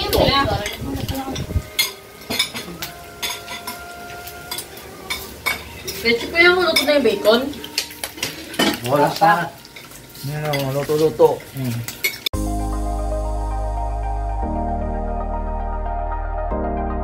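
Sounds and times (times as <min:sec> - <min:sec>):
utensils clinking on pan: 0:00.0 - 0:12.3
meat sizzling in a frying pan: 0:00.0 - 0:12.4.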